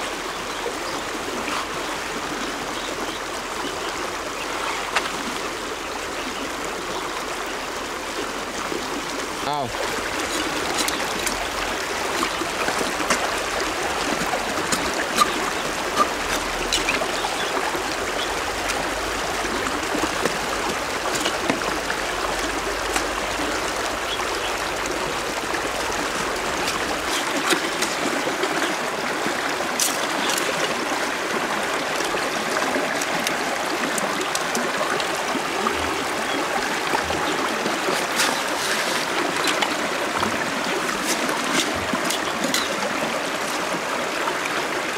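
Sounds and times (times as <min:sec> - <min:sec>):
water trickling over gravel: 0:00.0 - 0:44.9
knife scraping clam shell: 0:14.5 - 0:17.0, 0:26.2 - 0:28.0, 0:37.9 - 0:39.6, 0:40.8 - 0:42.8.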